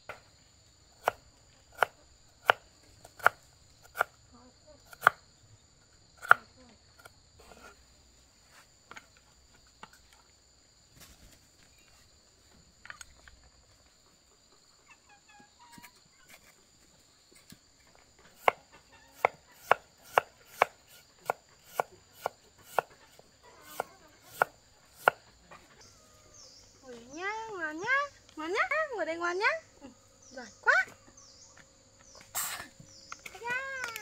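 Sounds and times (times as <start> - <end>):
knife chopping on cutting board: 18.4 - 22.9, 23.6 - 25.2.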